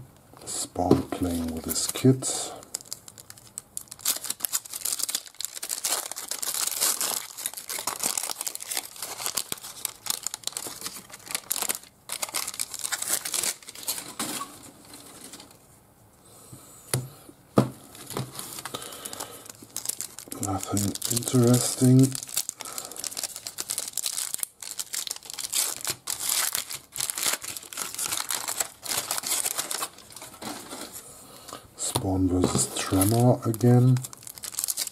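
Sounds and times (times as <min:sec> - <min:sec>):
foil wrappers crinkling: 0:01.1 - 0:15.5, 0:17.8 - 0:31.1, 0:31.8 - 0:34.9.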